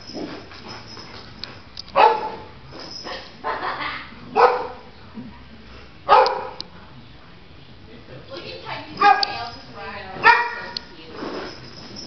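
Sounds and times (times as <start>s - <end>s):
dog barking: 2.0s - 2.5s, 4.3s - 4.9s, 6.1s - 6.6s, 9.0s - 9.4s, 10.2s - 10.8s.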